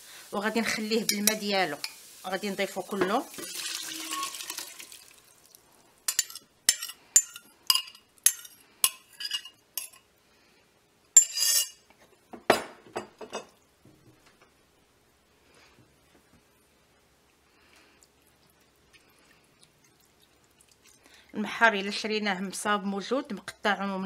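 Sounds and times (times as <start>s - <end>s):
spoon stirring in pot: 0.8s - 2.0s, 6.1s - 10.1s, 11.2s - 11.8s.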